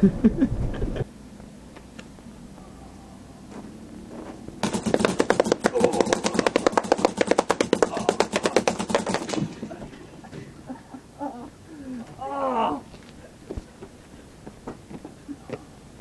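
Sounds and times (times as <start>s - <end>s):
paintball pistol rapid firing: 4.6s - 9.6s.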